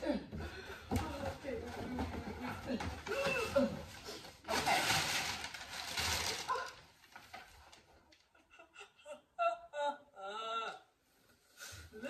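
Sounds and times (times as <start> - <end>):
packing paper rustling: 3.0 - 7.9.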